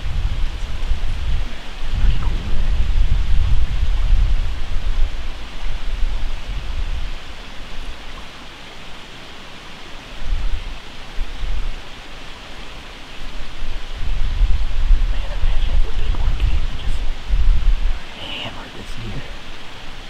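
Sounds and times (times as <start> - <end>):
wind buffeting microphone: 0.0 - 8.4, 10.1 - 20.0
steady hiss: 0.0 - 20.0.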